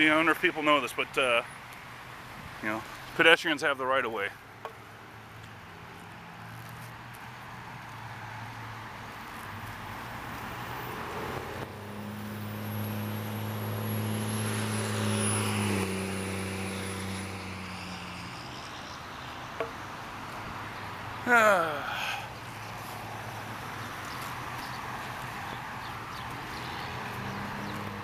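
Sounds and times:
vehicle passing by: 5.9s - 28.0s.

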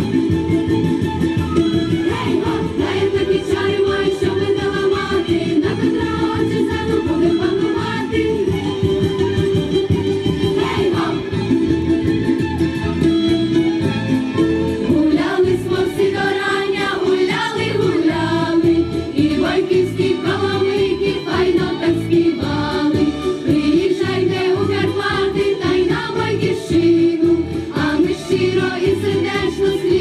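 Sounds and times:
instrumental accompaniment: 0.0s - 30.0s
girls' choir singing: 2.0s - 8.6s, 10.5s - 11.4s, 14.9s - 30.0s.

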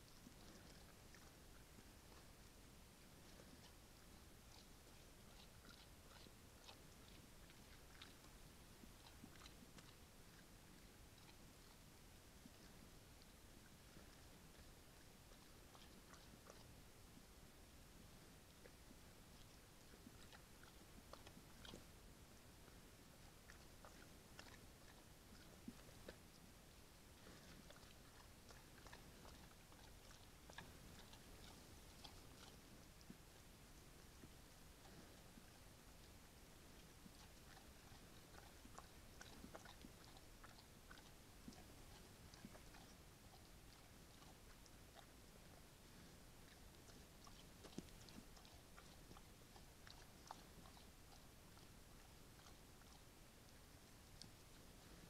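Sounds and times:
bear chewing and crunching: 0.0s - 55.0s
low hiss: 0.0s - 55.0s.

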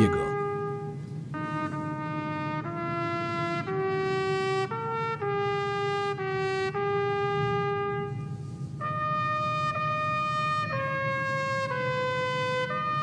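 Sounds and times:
solo trumpet melody: 1.5s - 8.2s.

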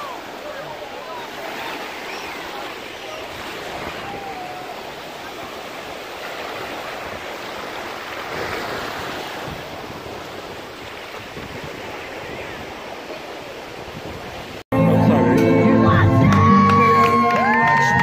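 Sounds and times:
waves washing on sandy beach: 0.0s - 14.6s
wind on microphone: 6.6s - 14.6s.

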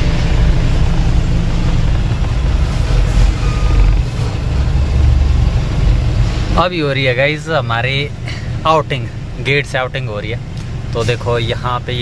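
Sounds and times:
diesel truck engine rumbling: 0.0s - 12.0s
short beep: 3.1s - 4.1s.

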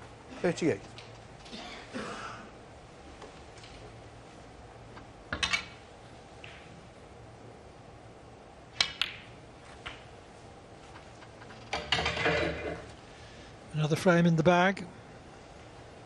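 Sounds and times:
snooker balls clicking: 6.4s - 6.7s, 8.7s - 10.2s, 10.9s - 13.0s
cue tip striking ball: 8.8s - 10.1s.

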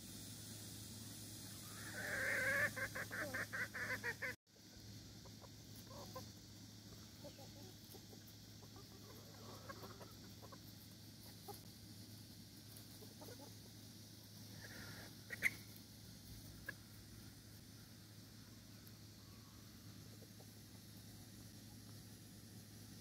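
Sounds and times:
chicken calling: 1.5s - 4.4s, 5.2s - 11.6s, 14.5s - 15.8s
chickens clucking: 1.5s - 22.0s.

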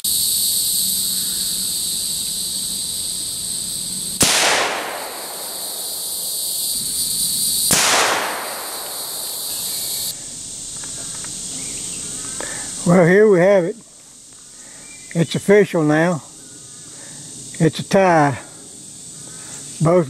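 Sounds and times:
insects chirring: 0.0s - 20.0s
rifle shots with echo: 4.2s - 6.3s, 7.7s - 9.9s.

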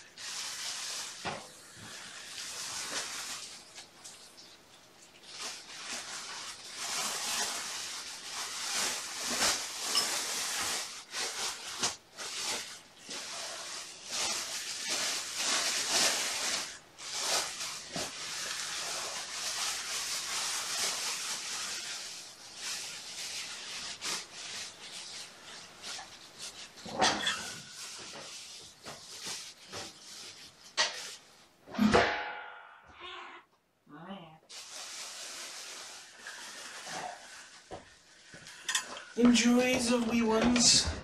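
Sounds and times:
scratchy rustling: 5.2s - 31.4s, 34.5s - 38.4s.

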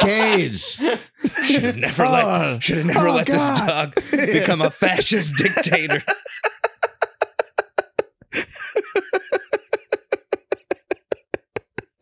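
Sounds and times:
man laughing hard: 0.0s - 11.8s.

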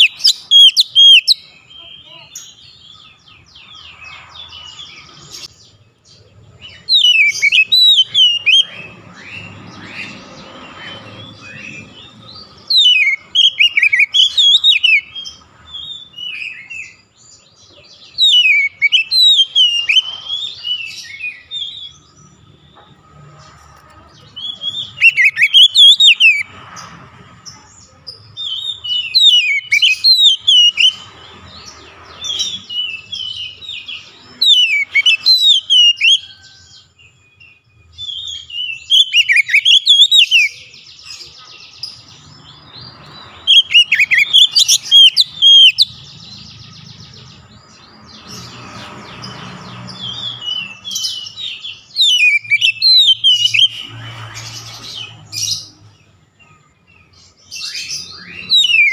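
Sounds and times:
bird singing whistled phrases: 0.0s - 1.9s, 6.7s - 8.8s, 12.7s - 15.2s, 18.2s - 21.8s, 24.4s - 26.4s, 28.4s - 31.0s, 32.4s - 36.4s, 37.9s - 40.7s, 43.5s - 46.0s, 50.1s - 54.0s, 57.6s - 58.9s.

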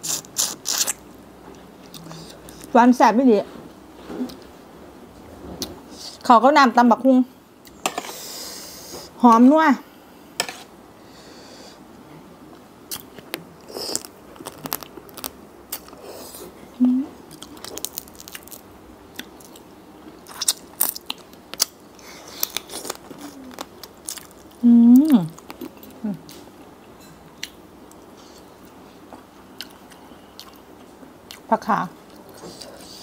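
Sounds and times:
crunching bites: 12.9s - 16.0s, 17.3s - 18.6s
person humming mm: 16.1s - 17.2s, 24.6s - 25.4s.

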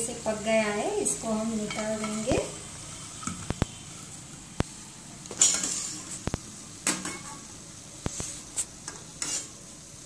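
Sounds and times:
hot oil sizzling: 0.0s - 10.0s
metal utensils scraping frying pan: 1.4s - 4.1s, 5.3s - 6.3s, 6.9s - 9.6s.

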